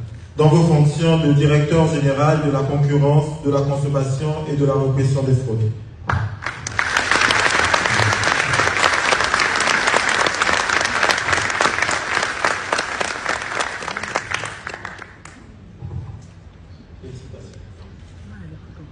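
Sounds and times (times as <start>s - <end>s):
audience applauding: 6.4s - 15.4s.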